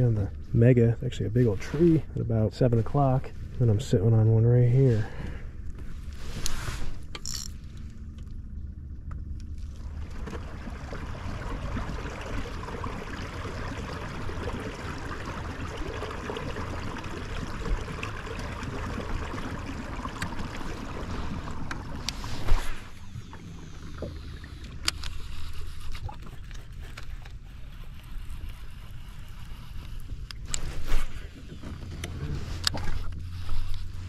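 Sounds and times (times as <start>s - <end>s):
water rushing around kayak: 9.6s - 34.0s.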